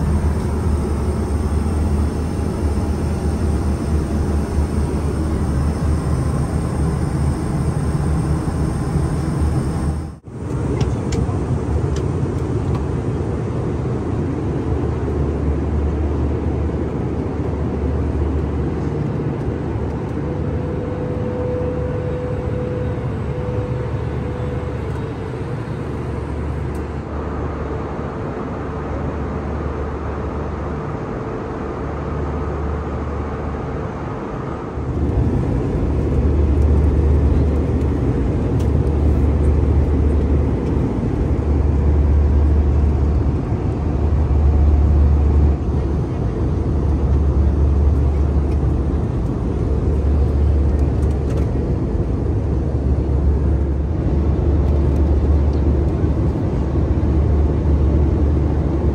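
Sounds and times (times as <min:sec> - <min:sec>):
aircraft cabin engine rumble: 0:00.0 - 0:58.9.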